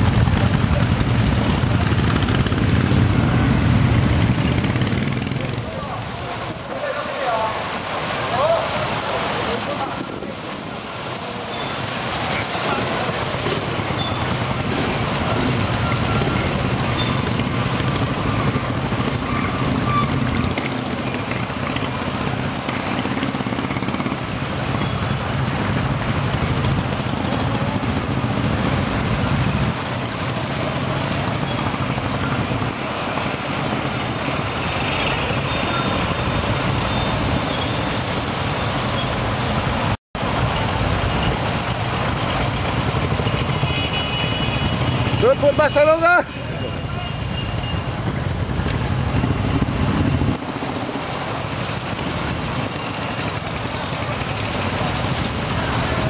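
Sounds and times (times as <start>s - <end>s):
motorcycles riding past: 0.0s - 56.0s.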